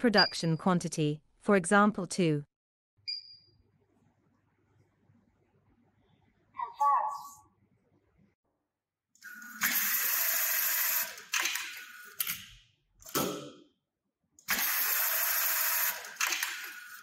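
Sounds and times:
sewing machine running: 9.2 - 12.2, 14.5 - 17.0.

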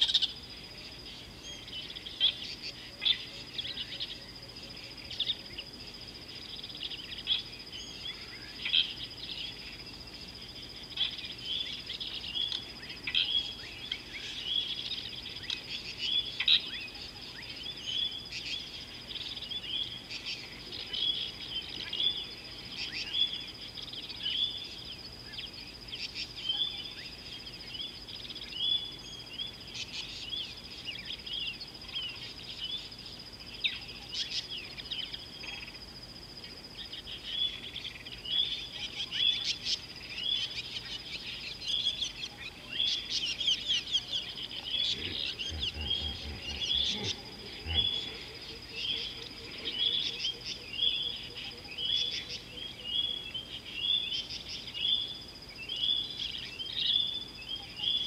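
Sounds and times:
steady high whine: 27.0 - 55.6.

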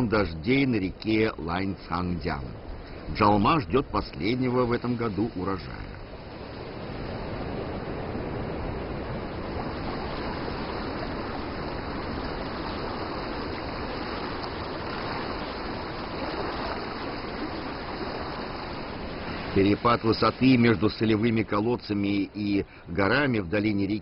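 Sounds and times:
river water rushing over rocks: 5.4 - 21.1.

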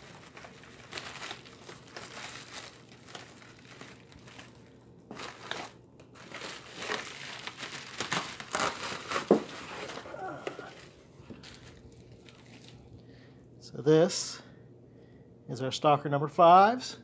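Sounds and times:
plastic and paper crinkling: 0.0 - 13.0.

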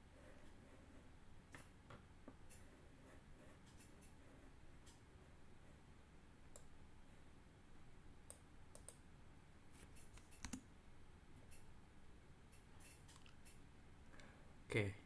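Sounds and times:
computer mouse clicks: 3.6 - 4.2, 6.5 - 6.7, 8.3 - 9.0, 9.8 - 10.6, 12.5 - 13.6.

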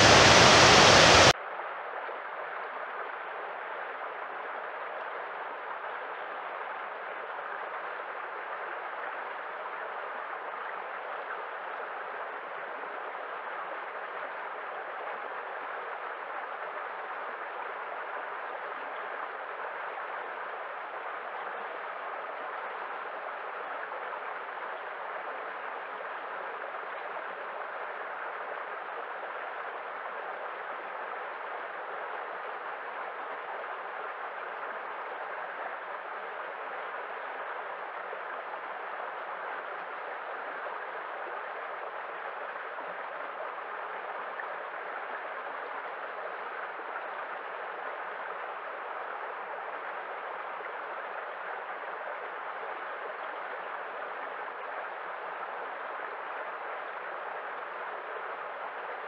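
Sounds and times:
stream rushing over rocks: 0.0 - 1.4, 13.4 - 59.0.

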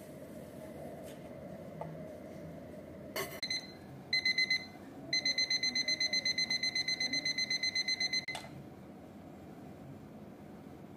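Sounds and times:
alarm clock beeping: 3.4 - 8.4.

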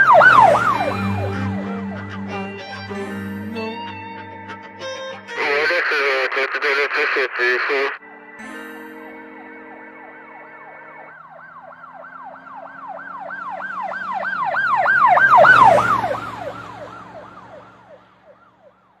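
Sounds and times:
low vehicle rumble: 0.0 - 5.8, 9.3 - 19.0
emergency siren yelping: 0.0 - 6.8, 7.4 - 19.0
background music: 0.0 - 11.7.

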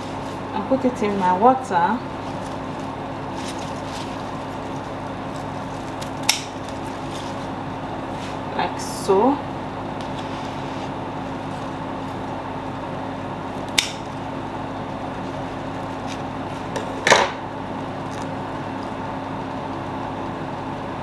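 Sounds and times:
steady background hum: 0.0 - 21.0
scissors snipping stems: 4.6 - 7.4, 13.6 - 14.2.

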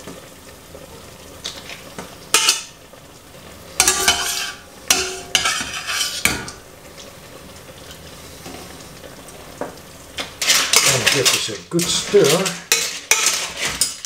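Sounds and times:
pasta sizzling in pan: 0.0 - 14.0
tongs clinking against pots: 3.8 - 6.6.

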